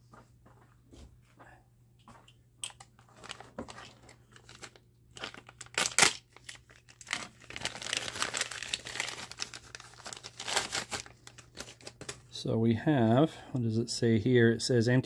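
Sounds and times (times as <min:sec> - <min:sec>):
plastic bag crinkling: 0:03.1 - 0:12.2.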